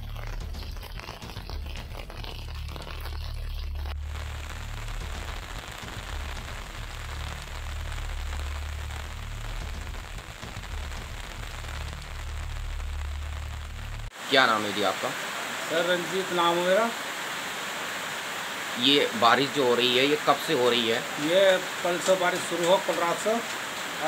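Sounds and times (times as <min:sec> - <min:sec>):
low rumble: 0:00.0 - 0:14.1
rain falling: 0:00.0 - 0:24.0.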